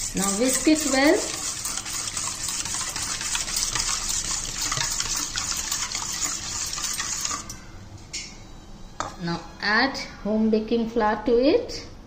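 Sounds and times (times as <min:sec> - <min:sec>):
whisk beating batter in bowl: 0:00.0 - 0:07.6.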